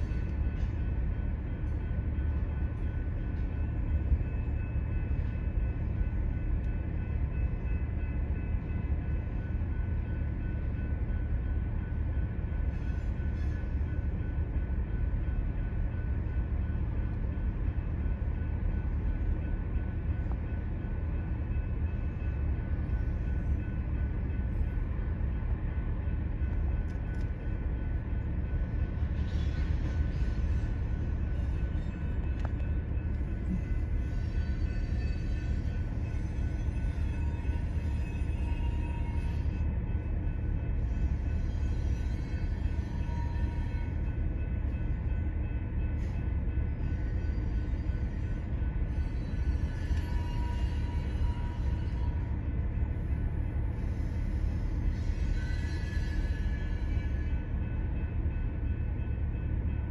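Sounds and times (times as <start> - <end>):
freight train low rumble: 0.0 - 59.9.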